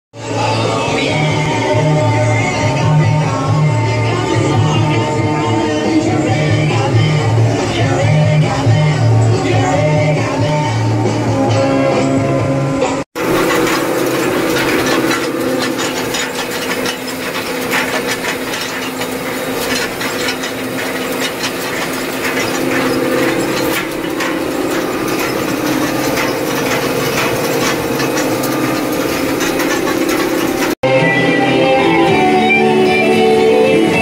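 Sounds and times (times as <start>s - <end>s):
rattling and clicking: 13.2s - 30.8s
tractor engine drone: 13.2s - 34.0s.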